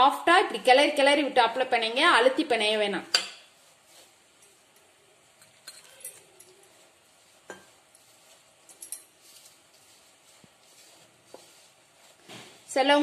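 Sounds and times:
hand mixing dough rustling: 0:00.0 - 0:13.0
light clicks and clinks: 0:04.8 - 0:06.7.

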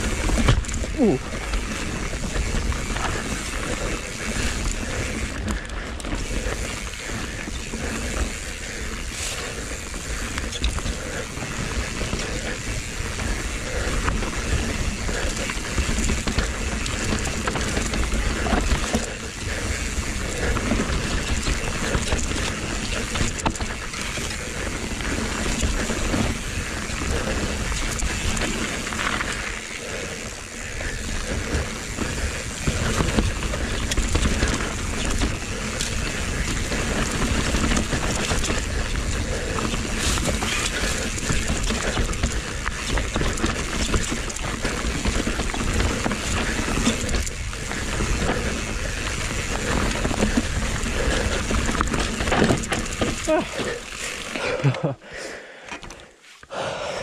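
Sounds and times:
bike chain and frame rattling: 0:00.0 - 0:55.0
bike tyres on dirt: 0:00.0 - 0:57.0.

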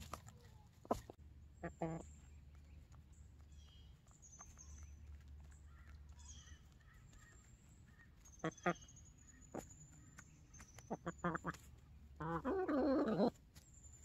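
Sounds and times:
pecking and scratching in straw: 0:00.0 - 0:14.0
wild birds chirping: 0:00.0 - 0:14.0
hen clucking: 0:00.7 - 0:02.5, 0:05.6 - 0:09.8, 0:10.6 - 0:13.5.

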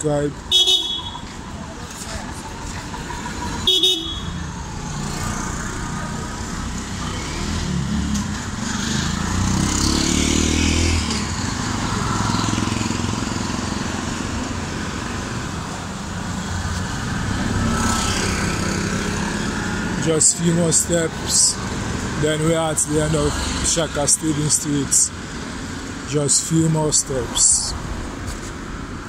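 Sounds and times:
vehicle engines humming: 0:00.0 - 0:29.0
vehicle horn toot: 0:00.5 - 0:01.2, 0:03.6 - 0:04.4.

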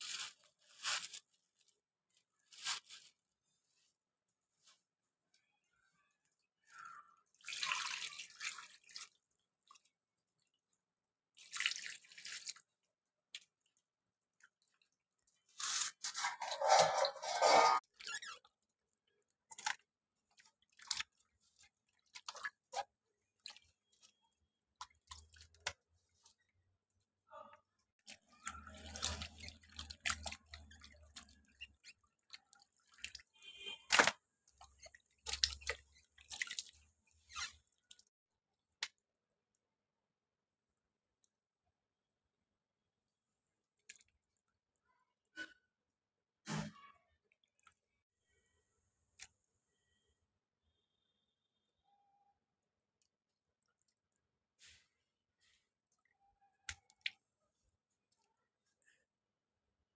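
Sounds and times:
water splashing in steel bowl: 0:06.7 - 0:18.6, 0:19.2 - 0:38.1.

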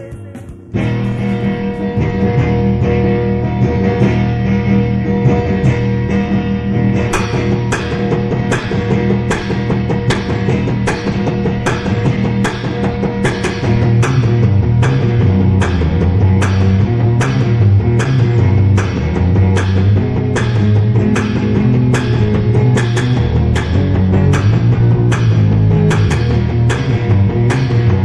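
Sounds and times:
drums steady beat: 0:00.0 - 0:04.3, 0:06.9 - 0:28.0
bass guitar: 0:00.0 - 0:28.0
electric guitar: 0:00.0 - 0:28.0
sharp cymbal hits: 0:07.0 - 0:28.0.

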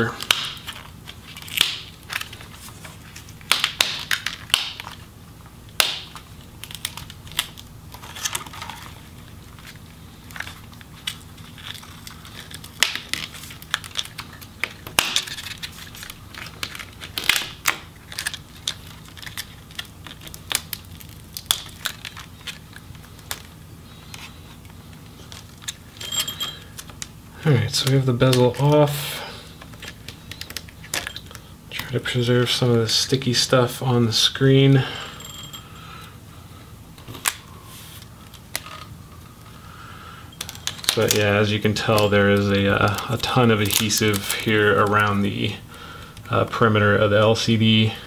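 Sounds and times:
adhesive tape crackling: 0:00.0 - 0:05.1, 0:05.7 - 0:25.9, 0:29.6 - 0:31.9, 0:40.4 - 0:45.5.

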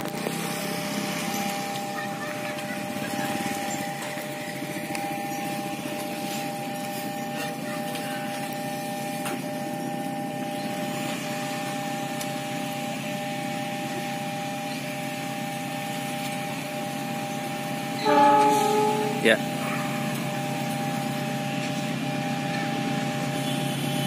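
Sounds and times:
engine running: 0:00.0 - 0:24.0
level crossing warning bell: 0:18.0 - 0:23.2.

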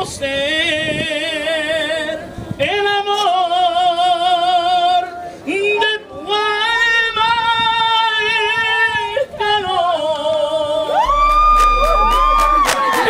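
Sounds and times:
man singing unaccompanied: 0:00.0 - 0:11.0
low hum: 0:11.0 - 0:12.7.

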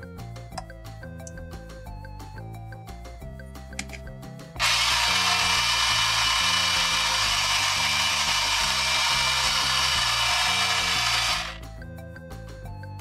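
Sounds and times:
toy toilet flushing hiss: 0:04.6 - 0:11.6.

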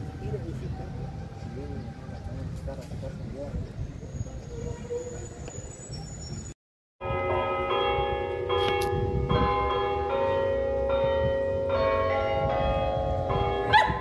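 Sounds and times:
church bells ringing: 0:07.0 - 0:14.0.

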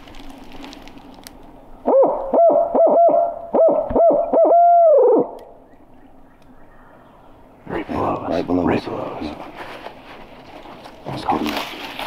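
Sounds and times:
owl call hooting: 0:01.8 - 0:07.4.

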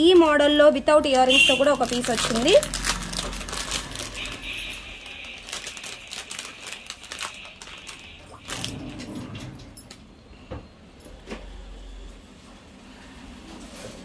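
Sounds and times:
plastic packet crinkling: 0:01.1 - 0:09.0.

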